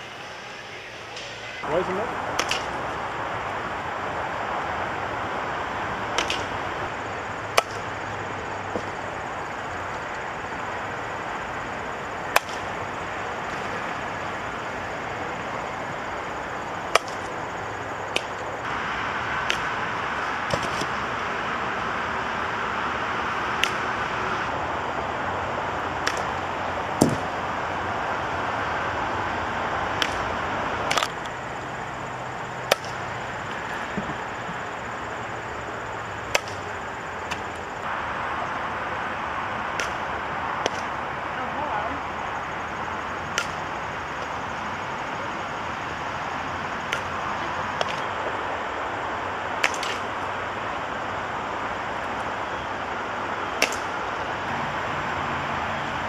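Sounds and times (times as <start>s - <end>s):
background hiss: 0.0s - 56.0s
bat cracking softballs: 0.9s - 24.6s, 25.4s - 28.7s, 29.3s - 38.8s, 39.6s - 41.3s, 42.7s - 48.4s, 49.4s - 54.6s.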